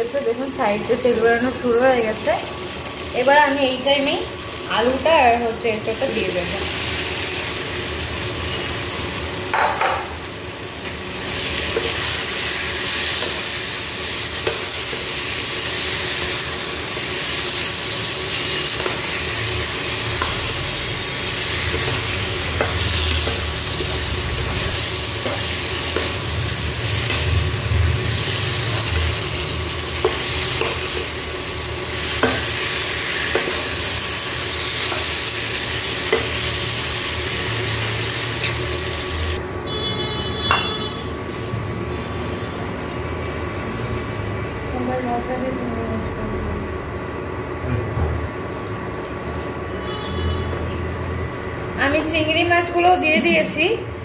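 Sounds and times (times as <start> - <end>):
food sizzling in hot oil: 0.0 - 39.4.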